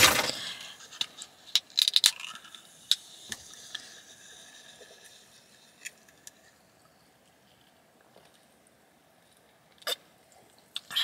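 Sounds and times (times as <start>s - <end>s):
soda can cracking open: 1.6s - 3.0s.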